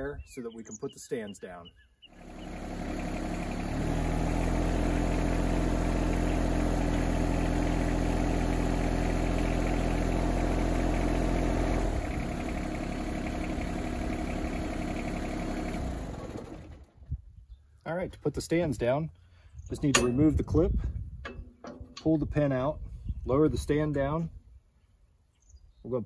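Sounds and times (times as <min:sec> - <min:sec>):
tractor diesel engine running: 0:02.1 - 0:17.0, 0:19.7 - 0:23.8.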